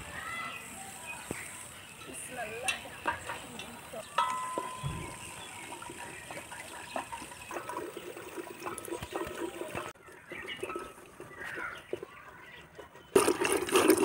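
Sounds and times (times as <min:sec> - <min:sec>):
liquid sloshing: 0:04.1 - 0:14.0.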